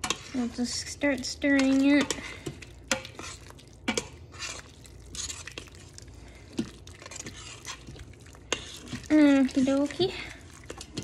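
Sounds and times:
utensil scraping metal pot: 0.0 - 11.0.

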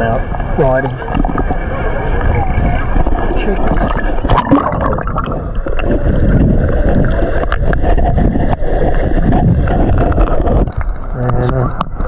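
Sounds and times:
low buffeting on microphone: 0.0 - 12.0
sea water sloshing and splashing: 0.0 - 12.0.

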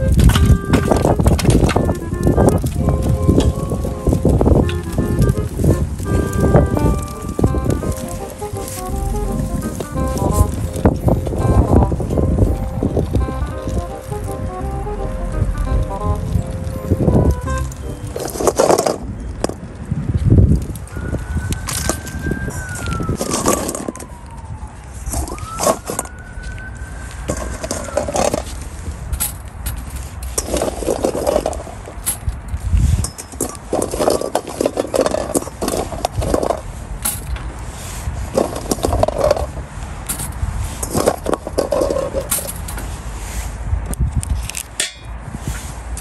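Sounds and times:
distant siren wailing: 0.0 - 19.4, 20.6 - 28.6
low rumble: 0.0 - 21.5
sharp clicks and pops: 0.0 - 37.6
charcoal fire crackling: 0.0 - 46.0.

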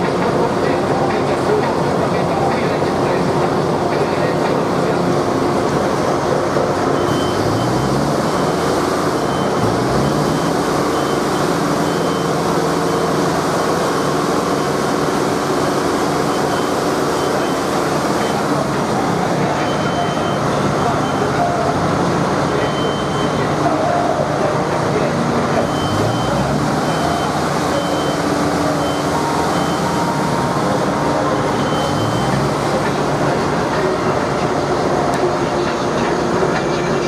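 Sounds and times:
engine running: 0.0 - 37.0
short high beeps: 6.9 - 13.1, 19.6 - 21.7, 22.5 - 23.5, 25.6 - 33.0.

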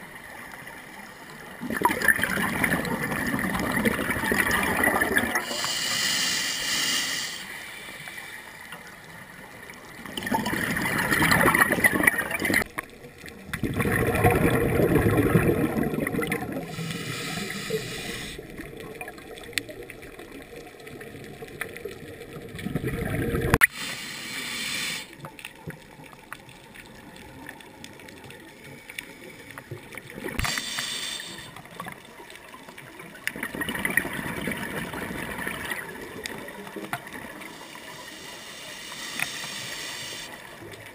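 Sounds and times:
scuba regulator bubbles underwater: 0.0 - 40.9.

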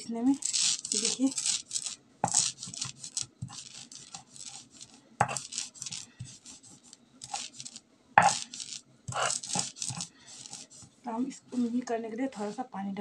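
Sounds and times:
stone roller grinding seeds: 0.0 - 10.9
stone knocking on stone: 8.2 - 8.5.

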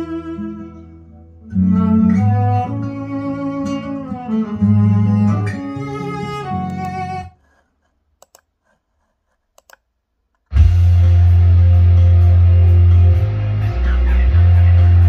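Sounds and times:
ballad with strings and guitar: 0.0 - 7.4, 10.5 - 15.0
faint clicks: 8.2 - 8.5, 9.5 - 10.5
loud music with heavy bass: 10.5 - 15.0.

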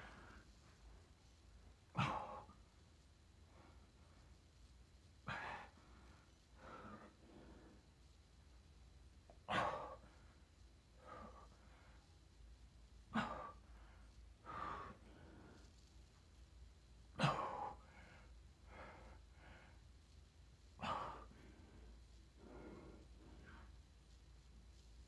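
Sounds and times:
man breathing heavily: 5.2 - 8.0, 9.5 - 12.1, 13.1 - 15.8, 17.4 - 20.0, 20.8 - 23.9.

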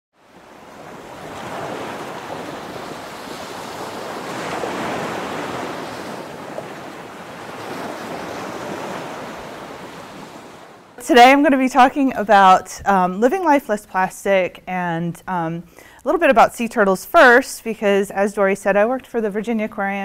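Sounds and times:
ocean waves washing in: 0.2 - 11.3.

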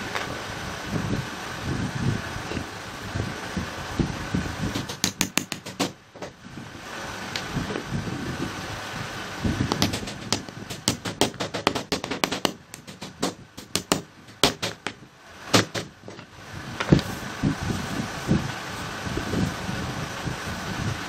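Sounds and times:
hammer driving nails into wood: 4.7 - 6.4, 9.7 - 17.0.

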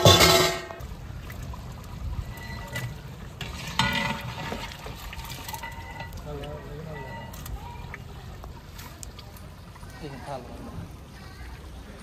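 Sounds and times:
metal ladle scraping a pot: 0.0 - 0.9, 2.2 - 7.5
ladle clattering: 0.0 - 1.1, 1.9 - 8.1.

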